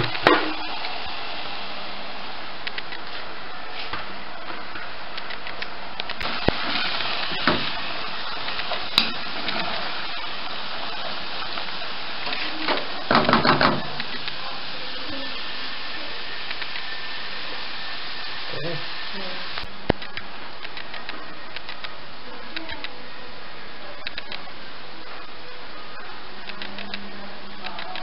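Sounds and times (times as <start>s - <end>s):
sizzling hiss: 0.0s - 28.0s
clicks: 2.6s - 3.2s, 5.1s - 7.8s, 16.4s - 16.9s, 19.6s - 23.0s, 24.0s - 24.5s, 26.4s - 27.0s.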